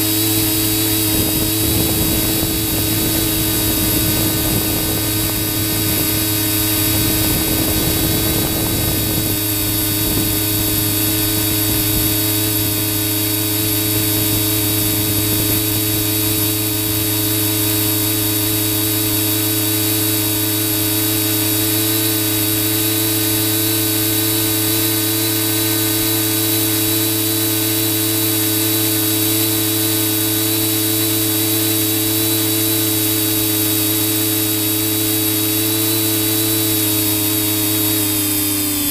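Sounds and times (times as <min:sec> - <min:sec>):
drone motor and propellers: 0:00.0 - 0:38.9
wind buffeting microphone: 0:00.4 - 0:17.3.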